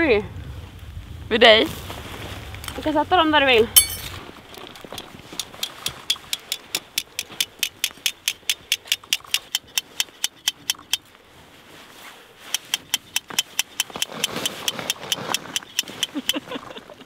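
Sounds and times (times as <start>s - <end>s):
rapid sharp clicks: 5.0s - 11.0s, 12.5s - 16.4s.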